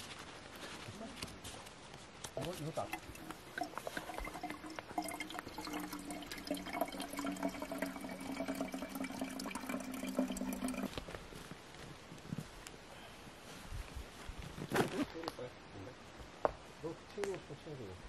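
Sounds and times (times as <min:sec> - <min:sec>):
water pouring into a bottle: 0:02.7 - 0:11.0.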